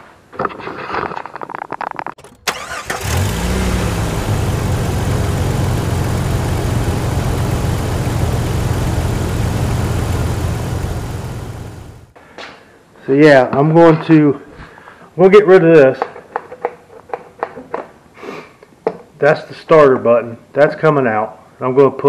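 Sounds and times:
engine revving: 0:02.2 - 0:12.2.

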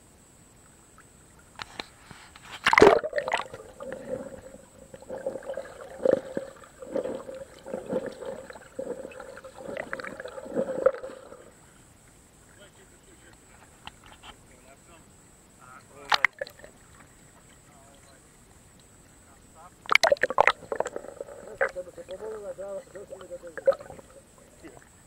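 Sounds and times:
camera splashing into water: 0:02.5 - 0:04.2, 0:16.1 - 0:16.7, 0:19.9 - 0:21.0
underwater sloshing thumps: 0:02.6 - 0:11.6
muffled underwater hum: 0:02.7 - 0:14.7, 0:15.6 - 0:25.0.

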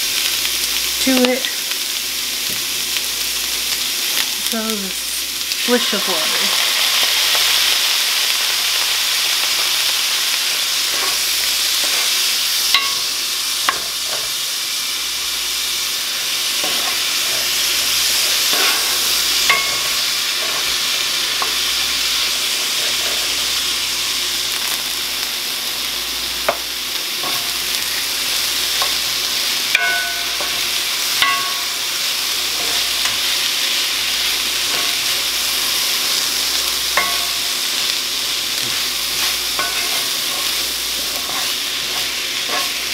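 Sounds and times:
vegetables sizzling in oil: 0:00.0 - 0:42.9
spoon tapping pan: 0:12.7 - 0:14.3, 0:19.4 - 0:20.6, 0:29.7 - 0:31.8, 0:36.9 - 0:37.5, 0:38.7 - 0:40.5.

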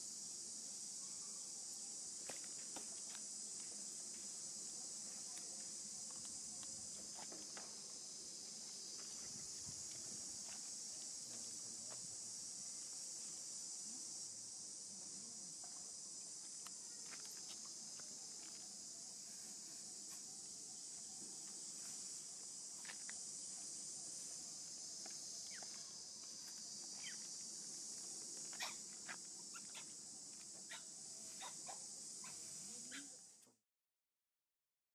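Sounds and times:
insects droning: 0:00.0 - 0:33.6.

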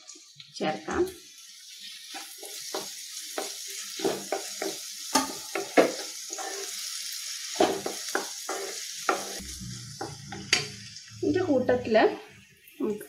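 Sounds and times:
vegetables sizzling in hot oil: 0:00.0 - 0:13.0
wooden spatula scraping a pan: 0:02.1 - 0:09.4.

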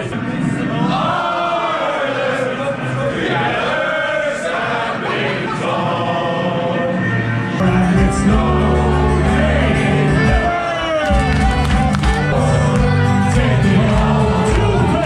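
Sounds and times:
crowd singing together: 0:00.0 - 0:15.0
live band playing: 0:07.6 - 0:15.0
man singing: 0:07.6 - 0:15.0.

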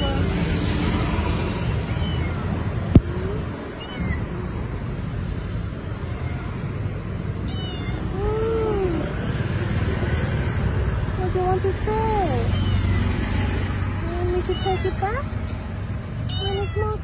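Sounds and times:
cat meowing: 0:01.8 - 0:02.6, 0:03.6 - 0:04.4, 0:05.9 - 0:06.8, 0:07.4 - 0:09.0, 0:12.4 - 0:13.2, 0:16.3 - 0:17.0.

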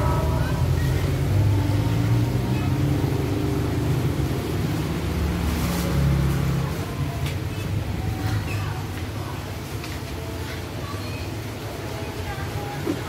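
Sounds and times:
heavy rain: 0:00.0 - 0:13.0.

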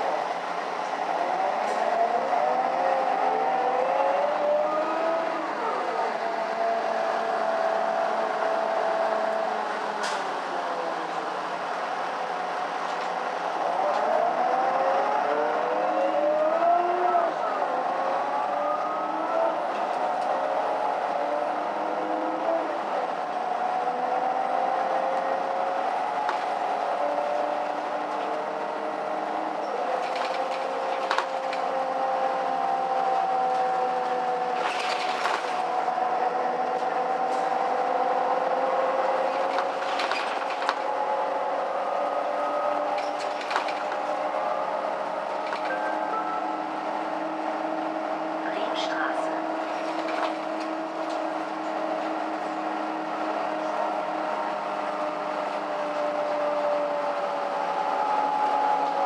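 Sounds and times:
bus engine and driveline: 0:00.0 - 0:59.0
knocks and rattles: 0:30.0 - 0:31.7, 0:39.3 - 0:40.9, 0:42.9 - 0:44.1.

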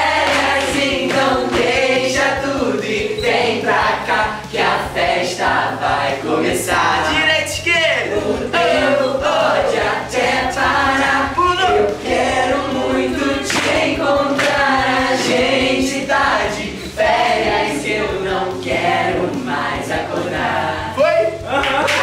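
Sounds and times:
backing track: 0:00.0 - 0:22.0
voices singing pop song: 0:00.0 - 0:22.0.

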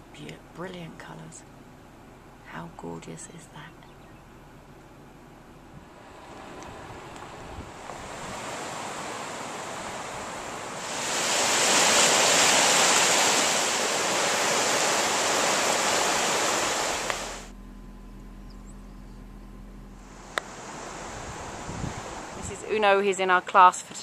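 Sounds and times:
river rushing over rocks: 0:07.7 - 0:17.5.

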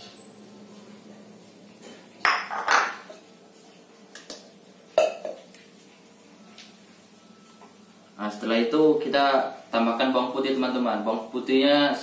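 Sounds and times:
plate clattering on tiled floor: 0:02.2 - 0:03.1.

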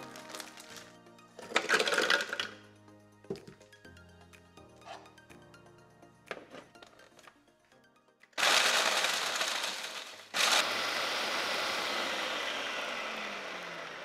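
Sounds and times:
food processor chopping cookies: 0:08.4 - 0:14.0.

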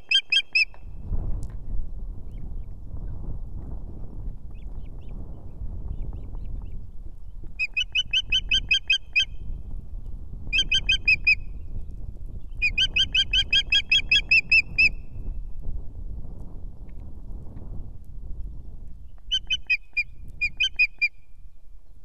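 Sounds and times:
steady low rumble: 0:00.9 - 0:07.6.

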